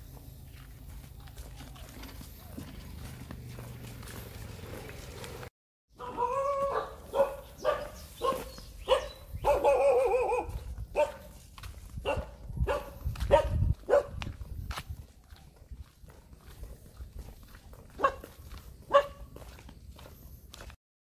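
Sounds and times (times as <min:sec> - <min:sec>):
dog yowling: 0:06.0 - 0:07.4, 0:09.4 - 0:10.6
dog barking: 0:06.0 - 0:11.4, 0:12.0 - 0:14.2, 0:17.9 - 0:19.3.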